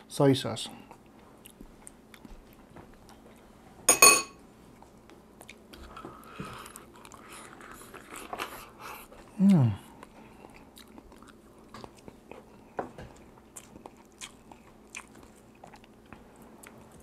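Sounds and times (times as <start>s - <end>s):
biting and chewing: 10.0s - 17.0s.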